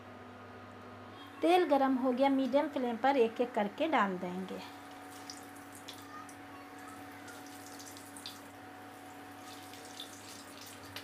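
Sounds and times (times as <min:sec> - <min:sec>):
faint steady hum: 0:00.0 - 0:11.0
food sizzling in hot oil: 0:09.1 - 0:11.0.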